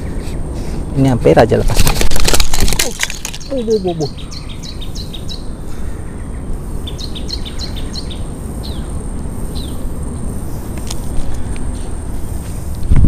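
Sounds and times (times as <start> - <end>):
low outdoor background hum: 0.0 - 13.0
small bird chirping: 3.2 - 12.8.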